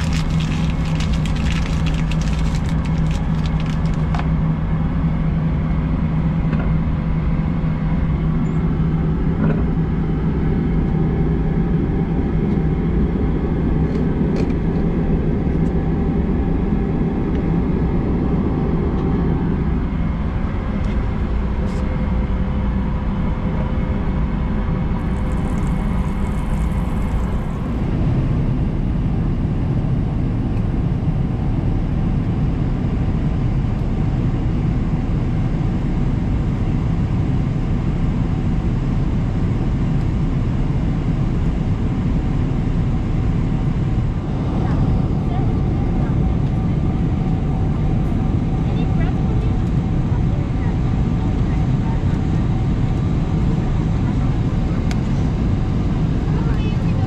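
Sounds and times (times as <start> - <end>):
paper wrapper clicks: 0.0 - 4.3
steady hum: 0.0 - 30.4
aircraft cabin engine rumble: 0.0 - 57.0.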